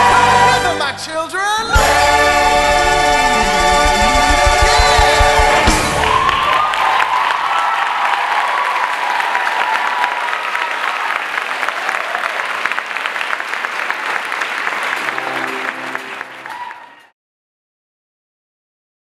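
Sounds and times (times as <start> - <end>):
audience applauding: 4.4 - 17.2.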